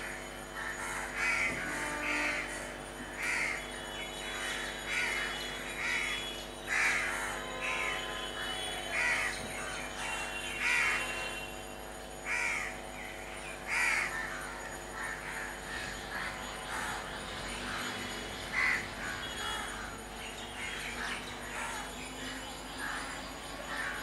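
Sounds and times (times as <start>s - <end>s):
steady low hum: 0.0s - 24.0s
crows cawing: 0.4s - 11.6s, 12.2s - 24.0s.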